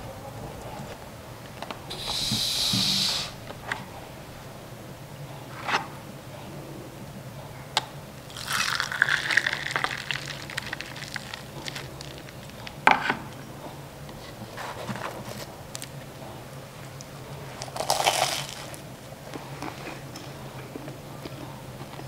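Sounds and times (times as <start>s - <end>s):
liquid pouring over ice: 8.3s - 12.4s.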